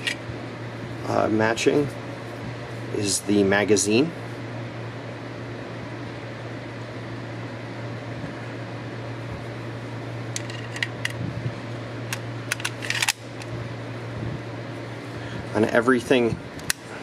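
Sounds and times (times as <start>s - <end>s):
low fan hum: 0.0s - 17.0s
metallic clicks of pistol handling: 12.1s - 13.5s.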